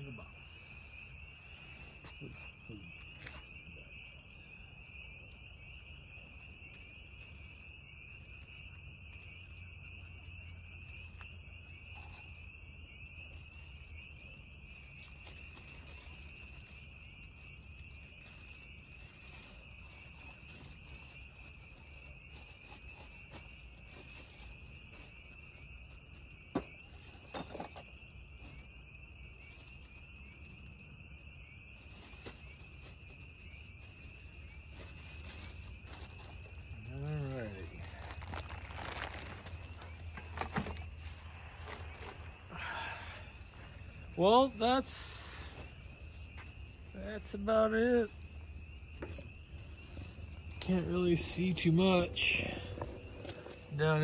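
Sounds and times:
crickets chirring: 0:00.0 - 0:54.0
low hum: 0:49.5 - 0:54.0.

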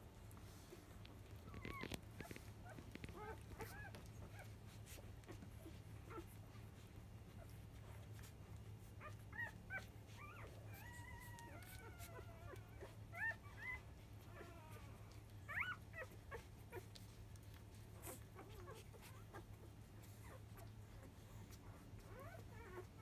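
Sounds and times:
puppy whining: 0:00.3 - 0:23.0
puppies squeaking: 0:01.4 - 0:04.4, 0:15.4 - 0:17.0.

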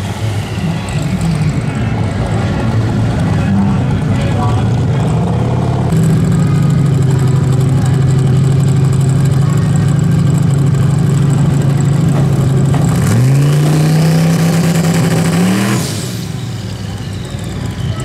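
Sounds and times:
engine revving high: 0:12.7 - 0:18.0.

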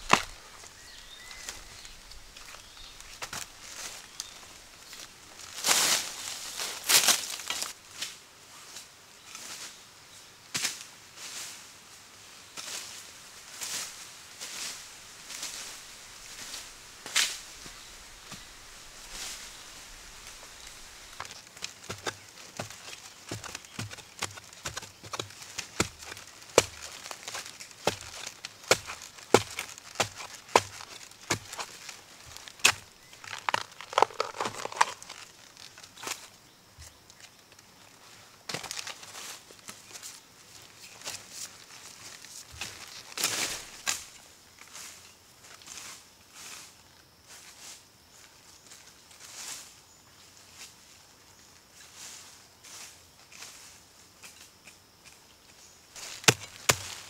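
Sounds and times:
digging tool chopping into soil: 0:00.0 - 0:00.4, 0:21.2 - 0:35.2, 0:56.0 - 0:57.0
dry leaf litter crunching: 0:00.0 - 0:07.8, 0:13.6 - 0:36.3, 0:37.7 - 0:44.8, 0:56.0 - 0:57.0.

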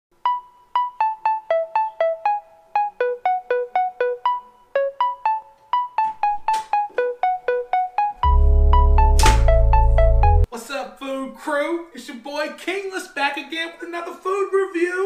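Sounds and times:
bouncy background melody: 0:00.2 - 0:10.5.

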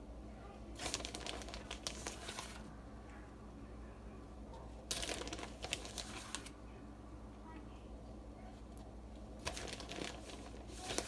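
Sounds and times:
low steady hum: 0:00.0 - 0:11.0
crinkly rustling of shredded cheese: 0:00.7 - 0:02.7, 0:04.8 - 0:06.6, 0:09.3 - 0:11.0.

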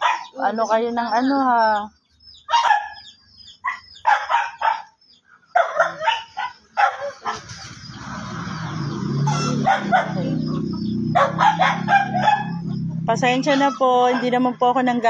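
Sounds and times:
dog barking: 0:00.0 - 0:00.4, 0:02.5 - 0:07.6, 0:09.3 - 0:12.8, 0:14.0 - 0:14.6.

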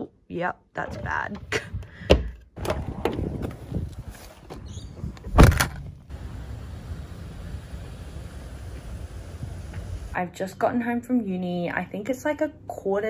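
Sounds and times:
car door slamming: 0:05.3 - 0:05.8.

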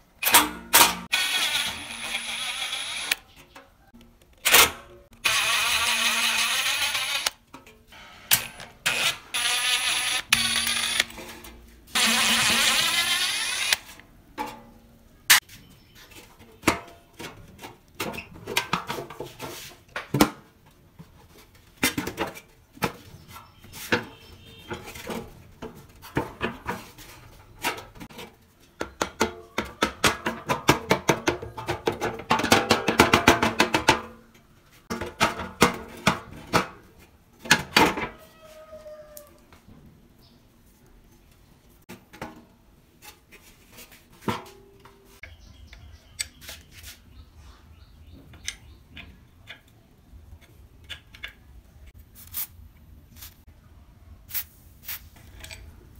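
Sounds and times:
power tool running: 0:01.1 - 0:03.2, 0:05.2 - 0:07.4, 0:08.4 - 0:11.1, 0:12.0 - 0:13.9.

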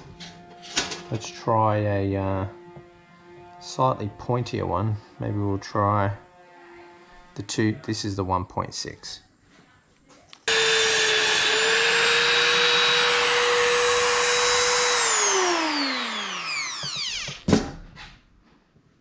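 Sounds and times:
electric sharpener motor whining: 0:10.5 - 0:17.5.

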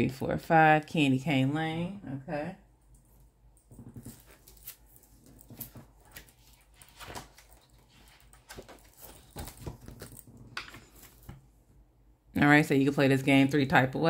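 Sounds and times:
pages flipping: 0:03.8 - 0:11.4.

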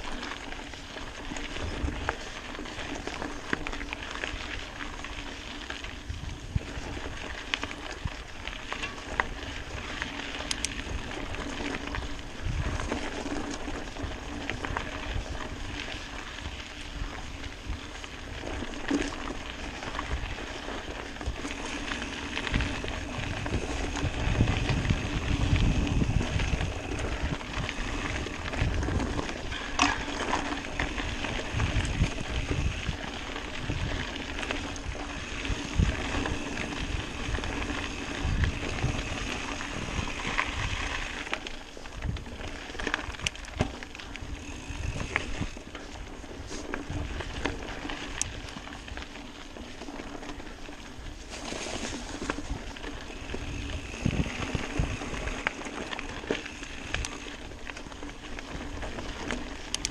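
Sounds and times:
bike rattling: 0:00.0 - 0:59.9
bike tyres crackling on gravel: 0:00.0 - 0:59.9
wind buffeting microphone: 0:10.7 - 0:18.8, 0:21.2 - 0:41.2, 0:44.2 - 0:48.6, 0:52.2 - 0:57.5.

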